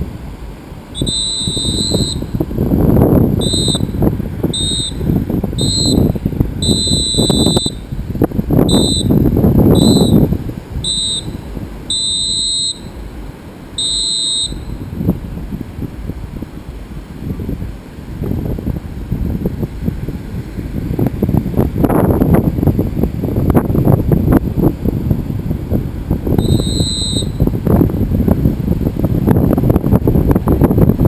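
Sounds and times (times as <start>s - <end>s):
wind buffeting microphone: 0.0s - 31.0s
electronic beeping: 1.0s - 2.3s, 3.4s - 3.9s, 4.6s - 5.0s, 5.6s - 7.8s, 8.7s - 9.2s, 9.8s - 10.2s, 10.8s - 13.0s, 13.8s - 14.8s, 26.4s - 27.4s.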